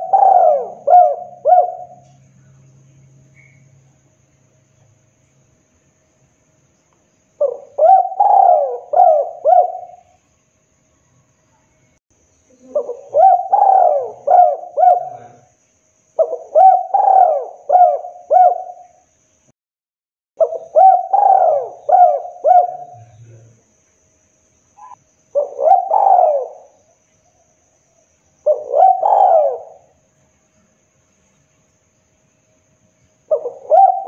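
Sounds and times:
dove cooing: 0.0s - 2.2s, 7.4s - 10.2s, 12.5s - 15.5s, 16.2s - 18.9s, 20.4s - 23.4s, 24.8s - 26.8s, 28.4s - 30.0s, 33.3s - 34.0s.

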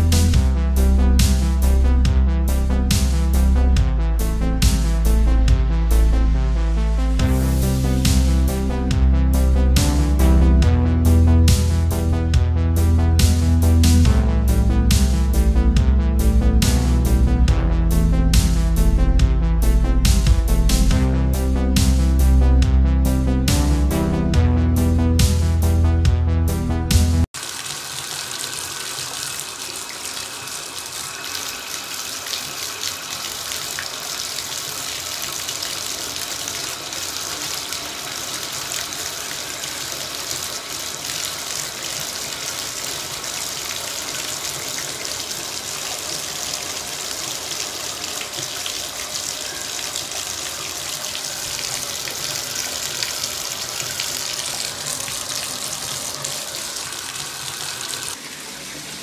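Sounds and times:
water pouring into bathtub: 27.4s - 59.0s.

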